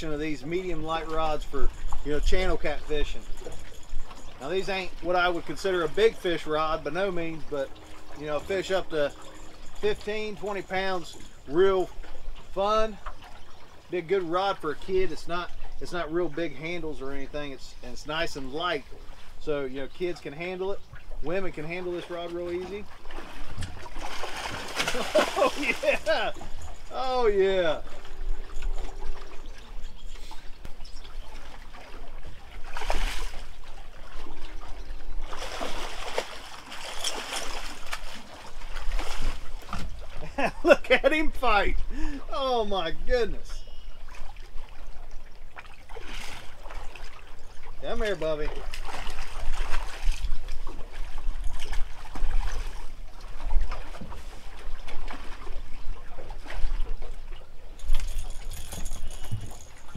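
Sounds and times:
fish splashing in water: 22.7s - 27.0s, 30.2s - 40.2s.

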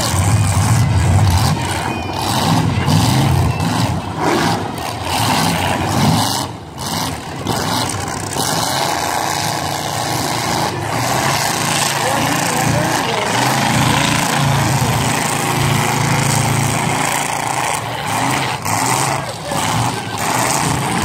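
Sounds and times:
car engines revving: 0.0s - 21.0s.

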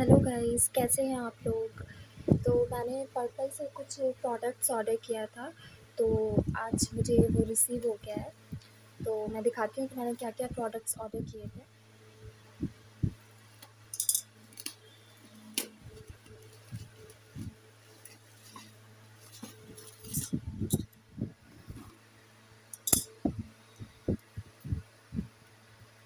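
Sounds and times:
low hum: 0.0s - 26.0s
hands handling cardboard box: 17.9s - 20.2s.

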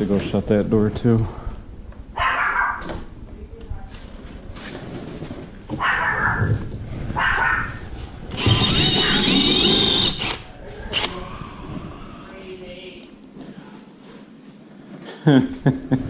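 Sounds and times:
dog barking: 2.2s - 2.9s, 5.8s - 6.6s, 7.2s - 7.8s
cordless drill whining: 8.3s - 11.2s.

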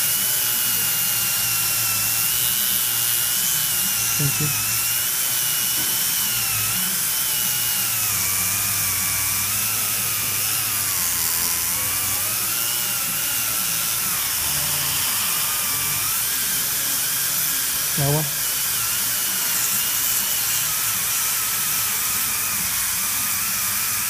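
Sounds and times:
dental handpiece motor whine: 0.0s - 24.0s.

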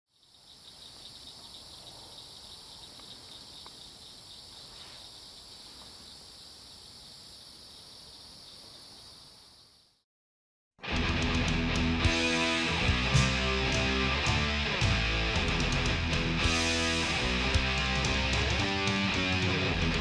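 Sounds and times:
high-pitched insect chorus: 0.1s - 10.0s.

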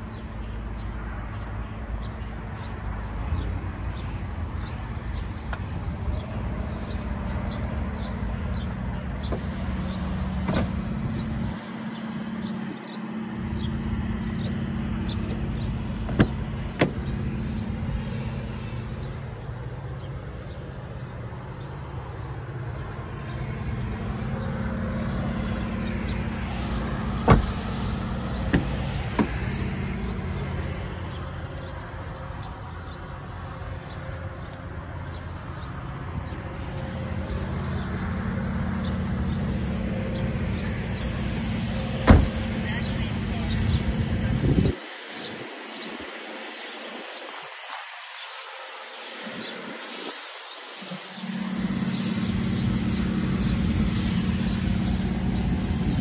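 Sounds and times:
car engine idling: 3.9s - 22.2s, 23.7s - 31.4s, 36.6s - 44.5s, 51.2s - 56.0s.

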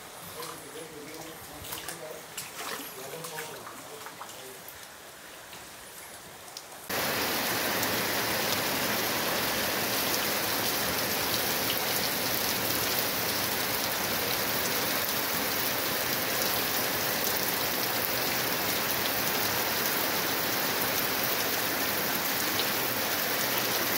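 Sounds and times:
heavy rain hissing: 6.8s - 23.9s.

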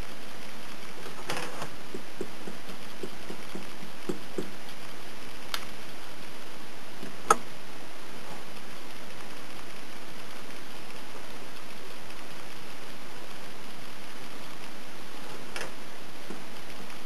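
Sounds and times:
steady hiss: 0.0s - 17.0s
drawing tools tapping on card: 1.9s - 4.6s.

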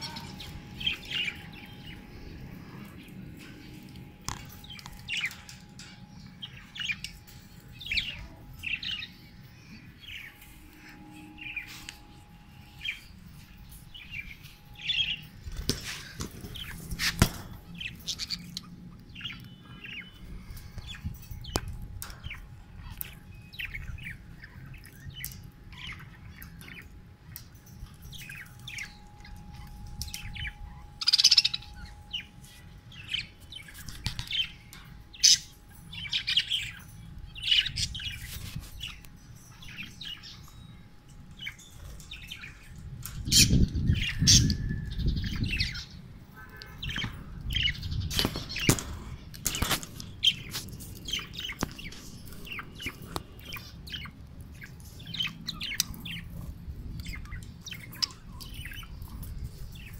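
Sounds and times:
budgerigars chirping: 29.6s - 32.3s, 51.1s - 59.9s.

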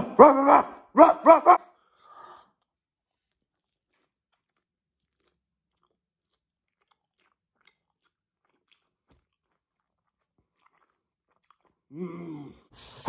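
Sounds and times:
faint chewing crunches: 2.4s - 12.0s.

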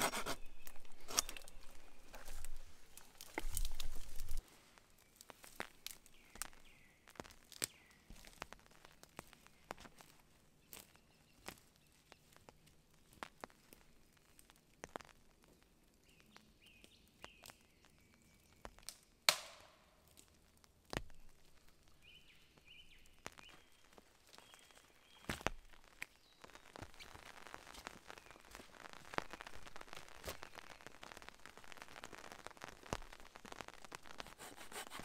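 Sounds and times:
footsteps on dry forest floor: 0.0s - 15.1s, 21.0s - 31.1s
twigs cracking: 0.0s - 15.2s, 16.2s - 35.0s.

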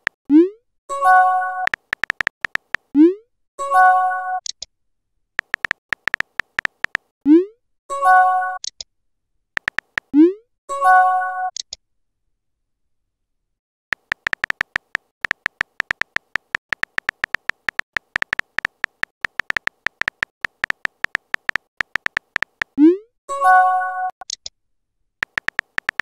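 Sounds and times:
phone keyboard clicks: 1.7s - 2.9s, 5.4s - 7.1s, 9.6s - 10.1s, 13.9s - 22.8s, 25.2s - 26.0s.

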